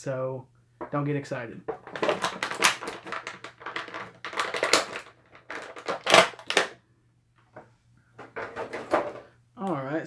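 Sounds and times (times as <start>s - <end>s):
plastic and cardboard crinkling: 1.7s - 6.8s.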